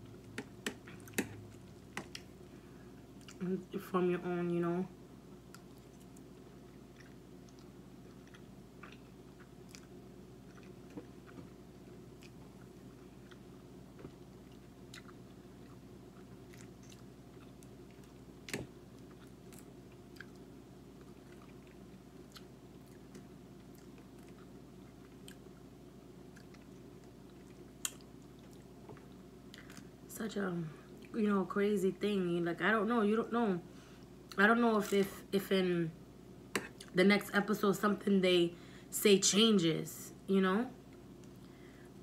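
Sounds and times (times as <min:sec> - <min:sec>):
steady low hum: 0:00.0 - 0:42.0
person chewing: 0:05.5 - 0:25.7, 0:26.3 - 0:30.0.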